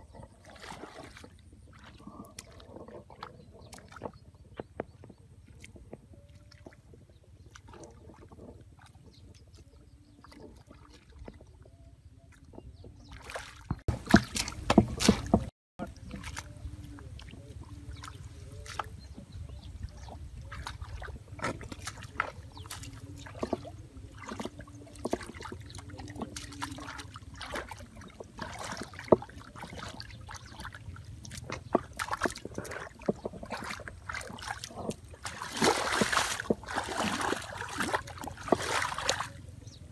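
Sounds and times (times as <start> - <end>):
hands splashing in muddy water: 13.1 - 19.2, 20.0 - 39.6.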